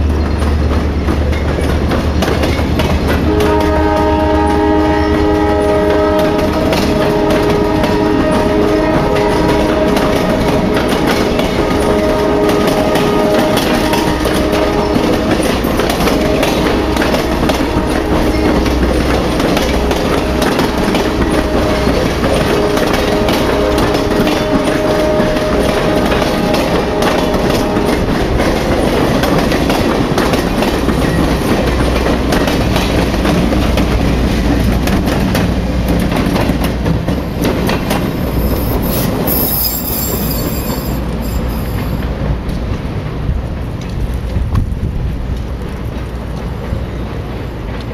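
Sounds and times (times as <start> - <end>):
train wheels rumbling: 0.0 - 47.9
wheels clicking over rail joints: 0.0 - 47.9
wheels squealing: 37.2 - 42.0.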